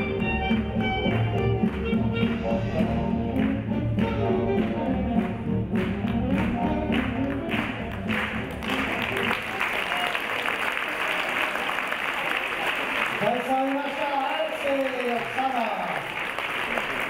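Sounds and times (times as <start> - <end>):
swing big band playing: 0.0 - 9.4
applause: 5.2 - 17.0.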